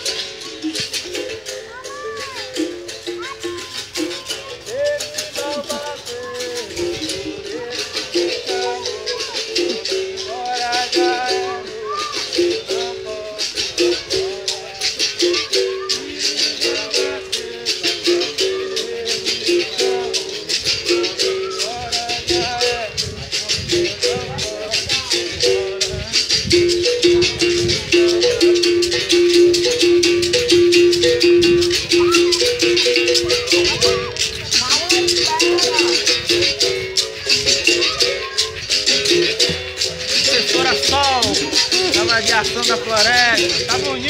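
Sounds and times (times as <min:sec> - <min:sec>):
basket rattles shaking: 0:20.5 - 0:44.0.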